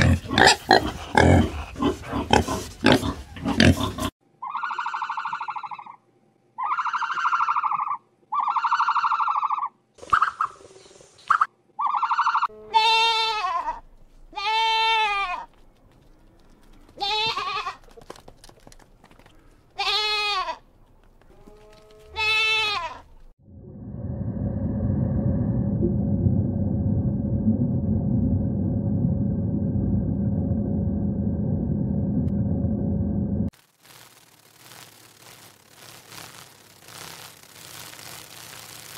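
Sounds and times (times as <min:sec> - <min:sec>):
goat bleating: 0:12.0 - 0:15.5, 0:17.0 - 0:18.0, 0:19.8 - 0:20.6, 0:21.3 - 0:23.1
low rumble: 0:23.4 - 0:33.5.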